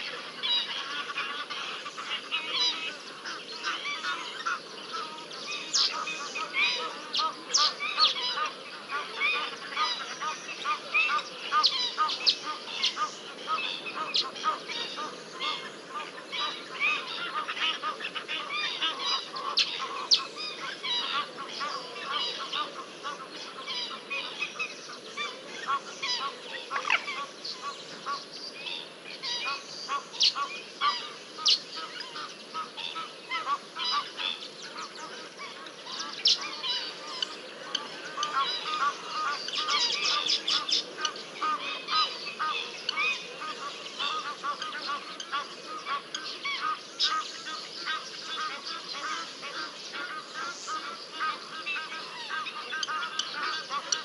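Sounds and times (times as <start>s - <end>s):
chorus of high animal calls: 0.0s - 54.0s.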